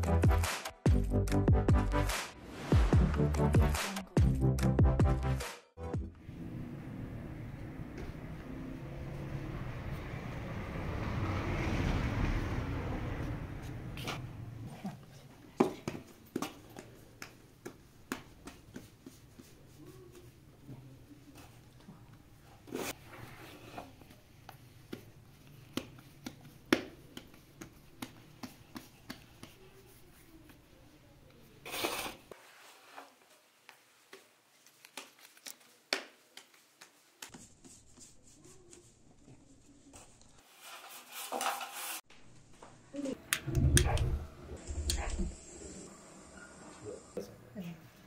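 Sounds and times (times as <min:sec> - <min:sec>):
hands kneading dough: 0:15.1 - 0:31.6, 0:32.4 - 0:40.5.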